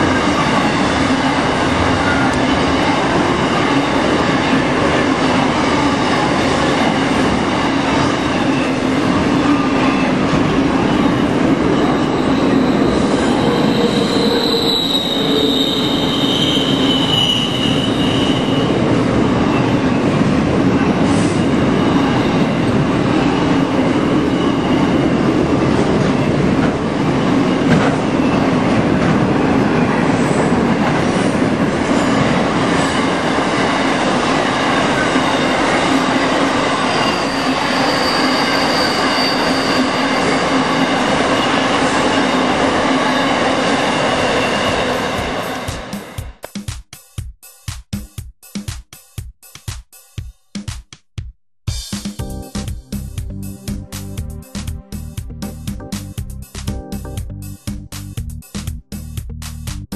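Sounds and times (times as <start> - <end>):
high-pitched wheel squeal: 10.8 - 18.8, 36.7 - 45.6
train wheels rumbling and rattling: 17.1 - 37.9.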